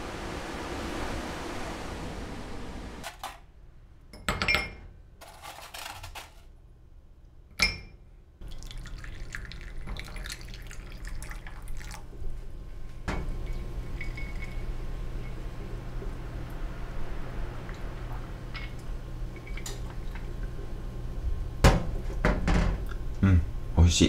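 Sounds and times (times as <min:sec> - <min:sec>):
crockery clinking on steel: 0:07.5 - 0:08.0, 0:13.1 - 0:15.4
coffee pouring into a cup: 0:08.4 - 0:12.2, 0:13.3 - 0:16.6.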